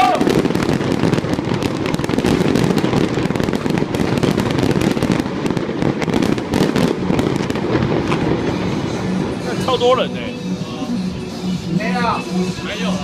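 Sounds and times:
fireworks bangs and pops: 0.0 - 10.1.

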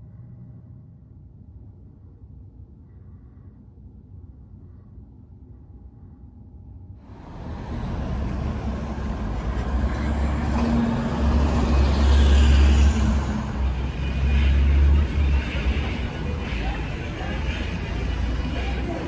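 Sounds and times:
bus passing: 7.0 - 19.0
cars passing: 7.0 - 19.0.

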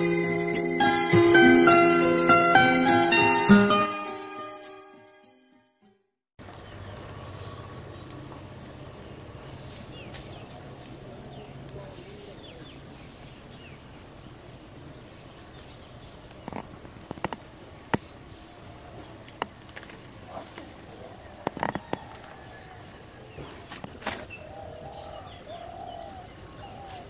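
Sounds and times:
insect chirps: 12.4 - 27.0
leaf snapping and rustling: 19.2 - 20.8, 23.6 - 24.4.

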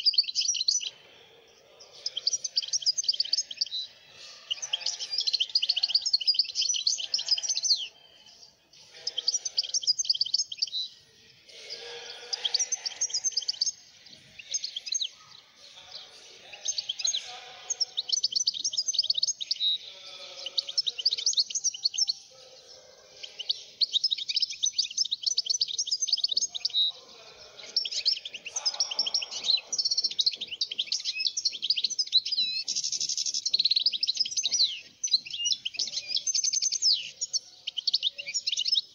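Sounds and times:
goldfinch twittering song: 0.0 - 1.0, 2.0 - 8.1, 8.9 - 10.9, 11.6 - 22.2, 23.2 - 38.9.

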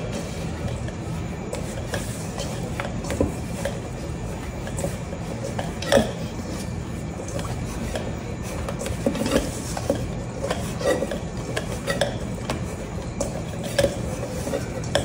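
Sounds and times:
dough squishing: 0.0 - 15.0.

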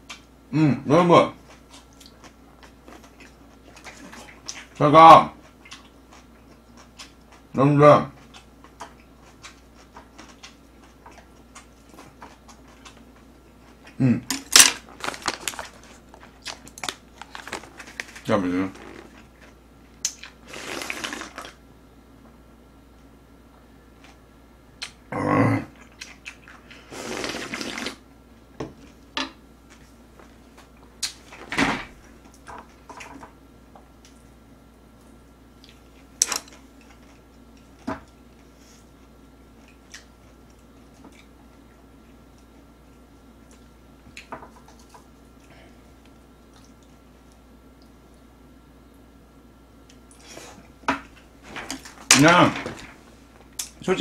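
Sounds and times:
person chewing food: 1.4 - 4.8, 5.4 - 18.2, 25.7 - 28.0, 33.8 - 48.3
person slurping soup: 20.4 - 21.5, 26.8 - 28.0.

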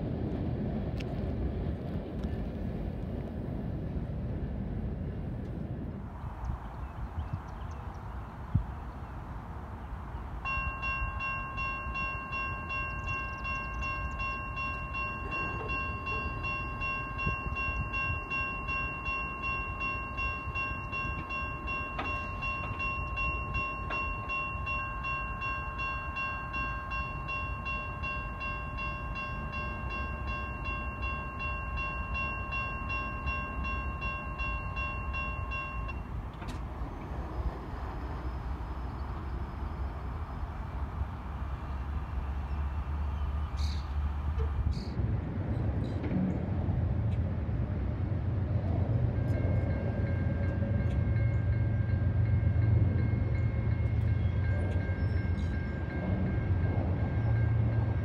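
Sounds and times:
railroad crossing bell ringing: 10.4 - 41.0, 49.0 - 58.0.

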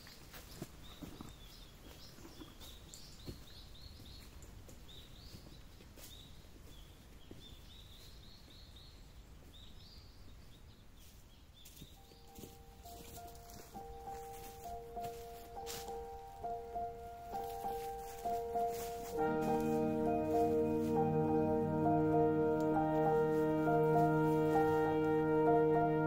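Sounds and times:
high chirping calls: 11.6 - 25.2.

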